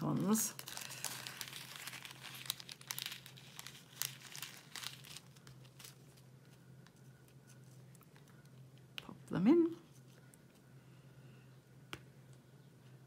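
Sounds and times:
plastic crinkling: 0.1s - 8.9s.

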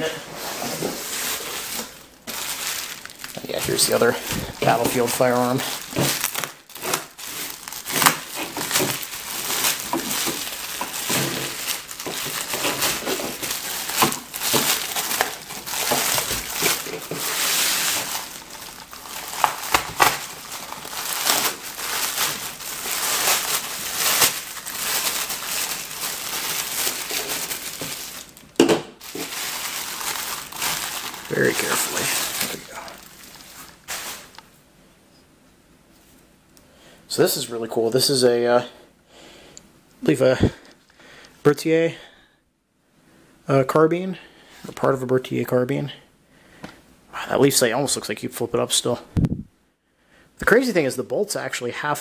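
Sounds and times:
bubble wrap crinkling and rustling: 0.3s - 34.6s.

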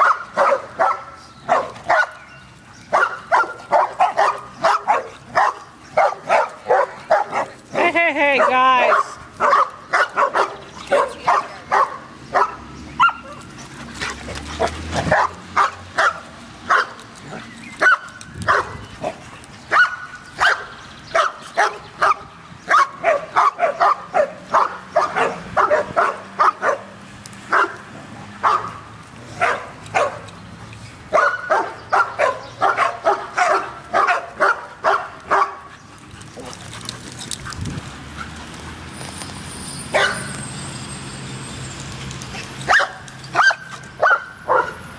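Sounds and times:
dog barking: 0.0s - 2.2s, 2.9s - 7.5s, 8.4s - 13.4s, 14.6s - 17.0s, 17.8s - 18.8s, 19.7s - 27.8s, 28.4s - 28.8s, 29.4s - 30.2s, 31.1s - 35.7s, 40.0s - 40.3s, 42.7s - 44.8s.

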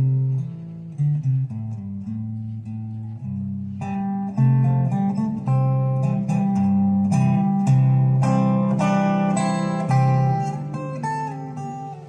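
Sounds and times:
plucked guitar music: 0.0s - 12.0s.

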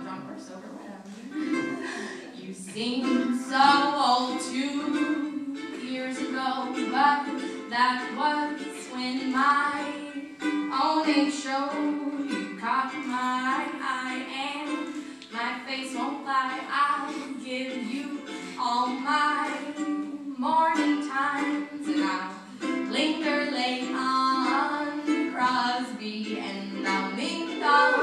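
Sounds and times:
ukulele strumming: 1.3s - 28.0s
woman singing: 1.4s - 28.0s.

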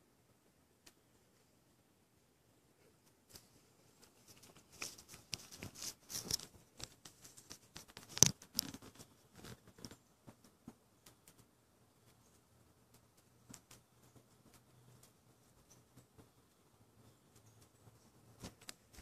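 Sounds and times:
rustling and scraping near microphone: 2.8s - 10.8s.

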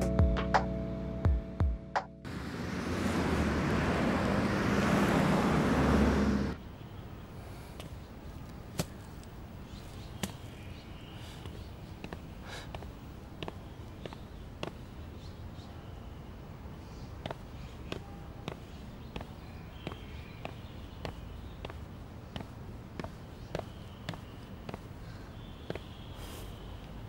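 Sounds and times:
road traffic rumble: 2.2s - 27.0s
light footsteps: 7.7s - 15.6s, 17.0s - 27.0s.

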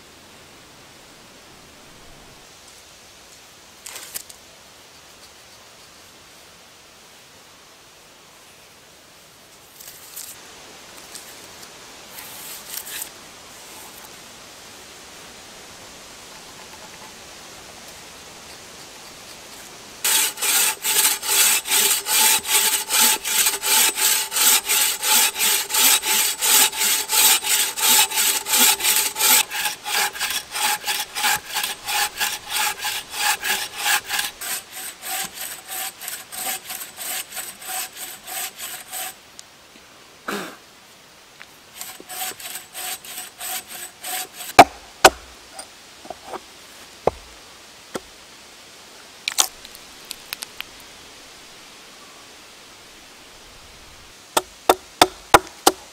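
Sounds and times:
bow saw cutting a log: 20.0s - 39.2s, 41.8s - 45.3s.

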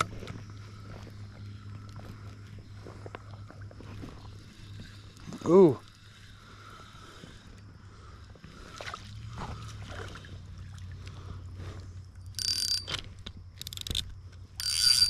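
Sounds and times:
quiet reel and line sounds: 0.0s - 15.0s
fishing reel drag buzzing: 12.2s - 15.0s.

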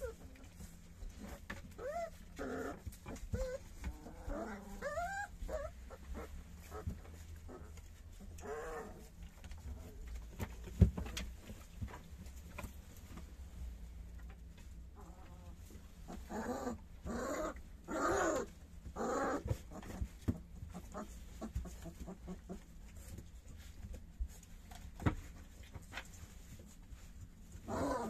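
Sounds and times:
quiet shuffling: 0.0s - 17.0s, 18.5s - 27.7s
puppies whimpering: 1.1s - 6.9s.

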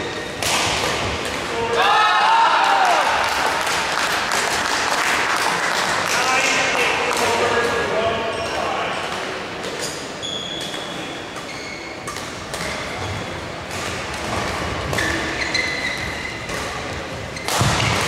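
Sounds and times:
rackets hitting shuttlecock: 0.1s - 1.6s, 16.4s - 18.0s
shoes squeaking on floor: 8.2s - 8.9s, 9.7s - 13.4s, 14.9s - 17.7s.

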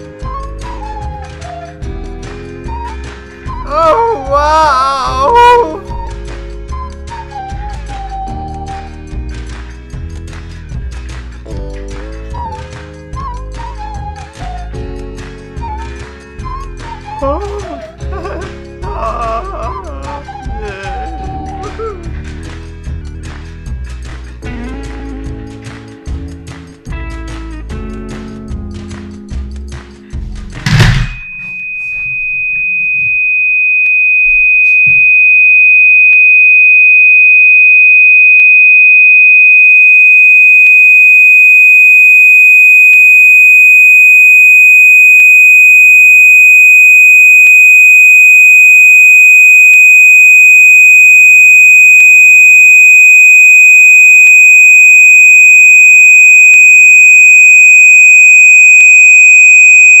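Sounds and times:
high-pitched electronic sine tone: 3.4s - 6.1s, 30.7s - 60.0s.

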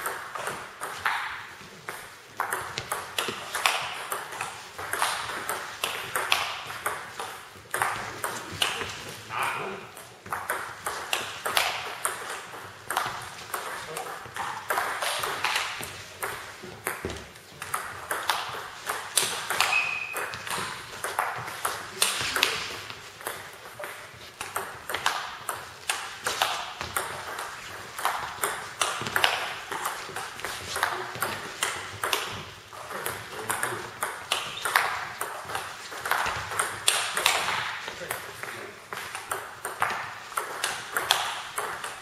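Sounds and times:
shoe squeak: 19.6s - 20.6s, 34.4s - 34.8s.

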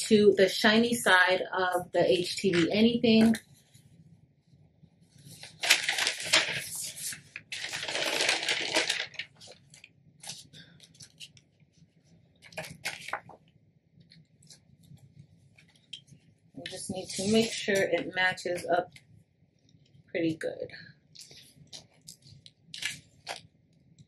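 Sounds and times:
vinyl sheet rustling and crinkling: 5.2s - 13.5s, 16.6s - 19.0s, 21.2s - 23.5s.

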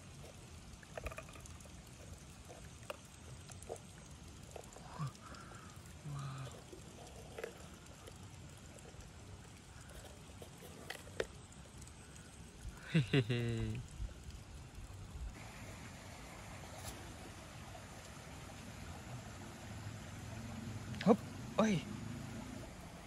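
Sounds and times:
faint outdoor background: 0.0s - 23.0s
low voice-like hums: 6.0s - 6.7s.

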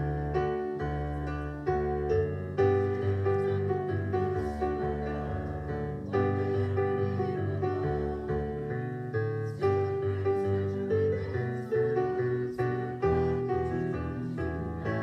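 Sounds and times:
instrumental music held chords: 0.0s - 15.0s.

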